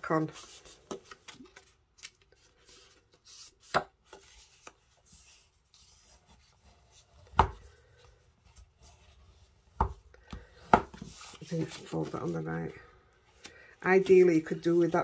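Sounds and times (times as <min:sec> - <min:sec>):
paper rustling: 0:00.0 - 0:09.6, 0:10.4 - 0:15.0.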